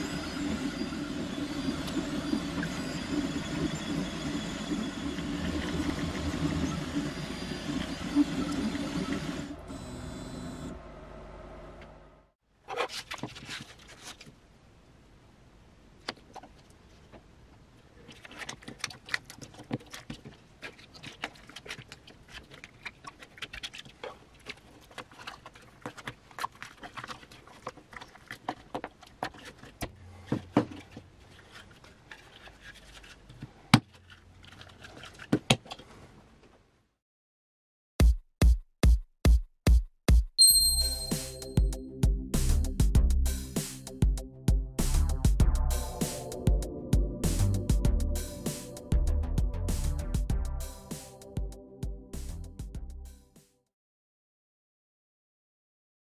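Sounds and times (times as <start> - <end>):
sandpaper crinkling and rustling: 12.8 - 14.4, 30.9 - 35.3.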